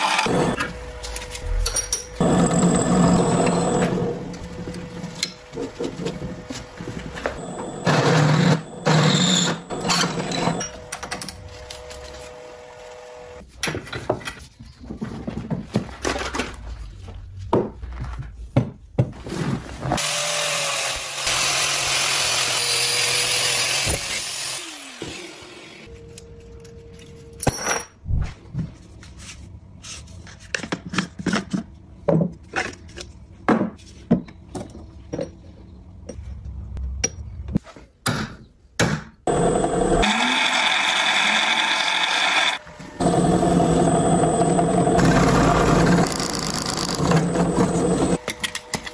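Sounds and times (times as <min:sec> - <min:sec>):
angle grinder grinding metal: 0:01.4 - 0:04.9, 0:07.4 - 0:10.9, 0:39.3 - 0:48.2
drill press drilling: 0:02.2 - 0:04.3, 0:07.4 - 0:10.8, 0:39.3 - 0:48.2.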